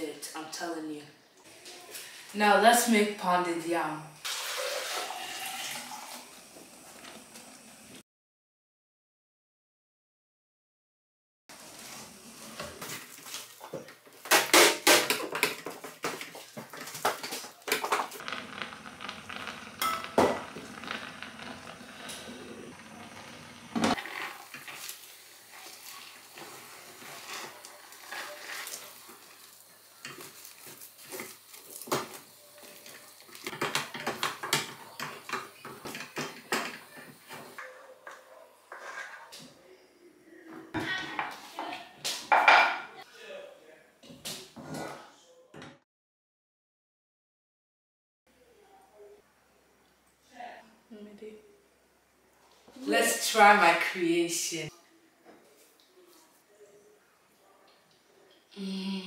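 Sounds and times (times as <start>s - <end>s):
wooden spatula scraping metal pot: 16.8s - 29.4s, 38.7s - 39.3s.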